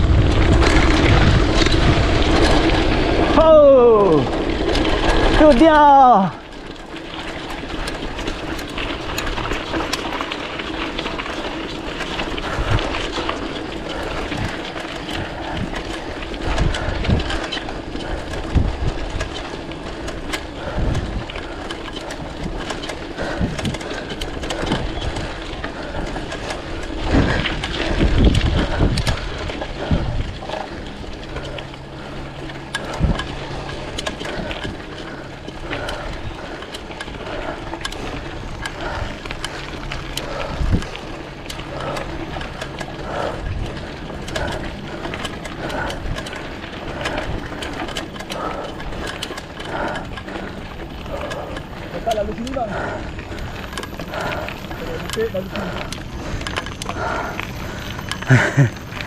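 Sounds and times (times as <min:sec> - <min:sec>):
bike rattles and knocks: 0:00.0 - 0:59.0
bike tyres on dirt track: 0:00.0 - 0:59.0
wind buffeting microphone: 0:00.0 - 0:59.0
steady hum: 0:22.9 - 0:59.0.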